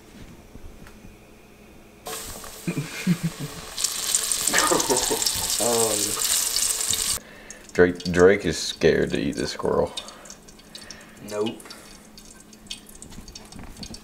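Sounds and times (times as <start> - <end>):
meat sizzling in hot oil: 2.1 - 8.3.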